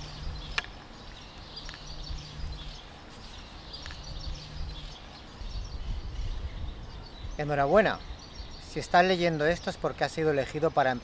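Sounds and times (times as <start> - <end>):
steady low rumble: 0.0 - 8.6
low hum: 1.4 - 6.8.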